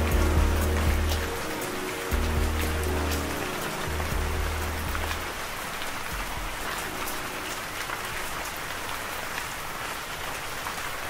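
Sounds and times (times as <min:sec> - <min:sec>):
low music notes: 0:00.0 - 0:08.6
steady rain: 0:00.0 - 0:11.0.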